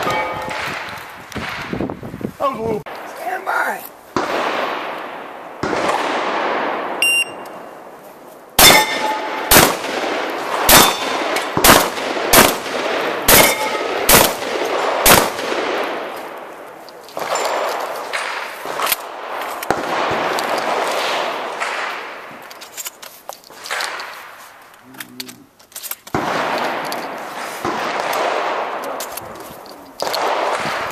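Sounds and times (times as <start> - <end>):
steel targets ringing: 0.0 - 0.8, 8.6 - 9.5, 10.7 - 11.2, 13.3 - 14.1
shotgun firing: 0.0 - 1.7, 4.2 - 7.0, 8.6 - 16.4, 17.2 - 22.3, 26.1 - 29.0, 30.0 - 30.9
shot timer beep: 7.0 - 7.6.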